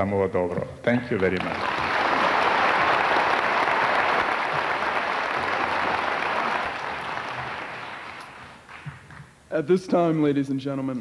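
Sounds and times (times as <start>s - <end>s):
audience applause: 1.2s - 9.2s.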